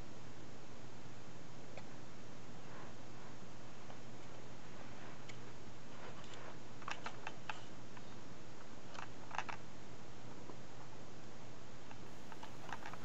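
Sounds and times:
low hum and hiss: 0.0 - 13.0
plastic toy clicks: 8.9 - 9.6, 12.3 - 13.0.

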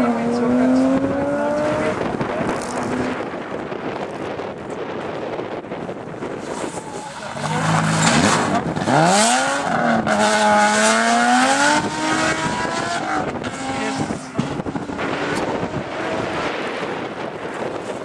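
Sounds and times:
car engine accelerating hard: 0.0 - 3.5, 6.9 - 17.9
tyre noise on gravelly tarmac: 2.2 - 3.2.

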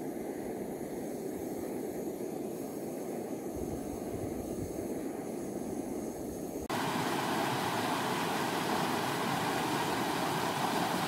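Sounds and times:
camping stove burner rushing: 6.7 - 11.0
stream rushing over rocks: 6.7 - 11.0.

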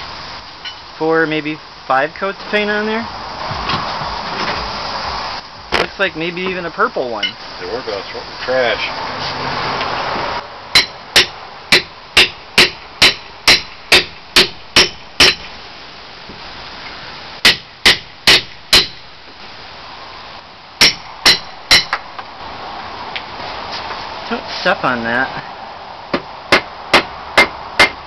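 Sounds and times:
hammer blows with metallic ring: 10.8 - 15.5, 20.8 - 22.0.

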